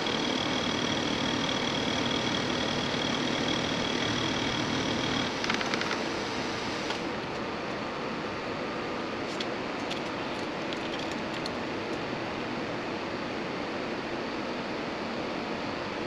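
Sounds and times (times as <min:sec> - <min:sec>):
air conditioner rushing: 0:00.0 - 0:12.5.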